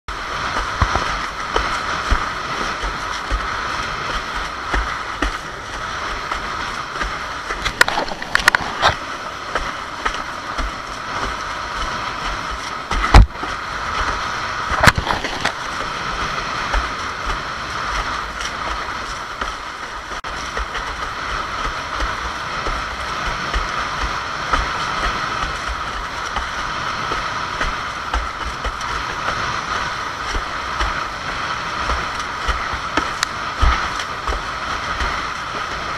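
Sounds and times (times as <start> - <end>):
water rushing and sloshing: 0.1 - 35.9
wind buffeting camera: 0.1 - 35.9
board knocking and slapping: 7.6 - 9.0, 12.9 - 15.6.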